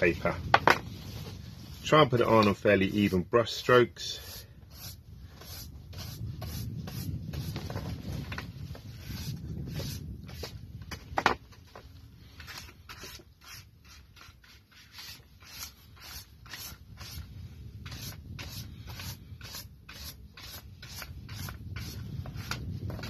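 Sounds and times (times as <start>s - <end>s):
paintbrush swishing on paper: 0.2s - 10.5s.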